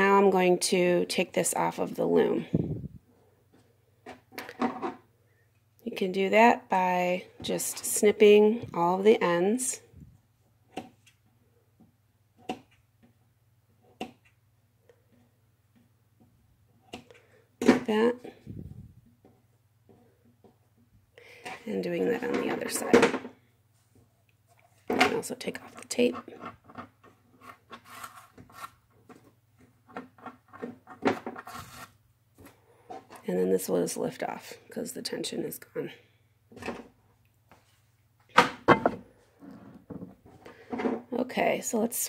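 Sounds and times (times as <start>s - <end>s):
tape peeling off cardboard: 31.4s - 32.0s.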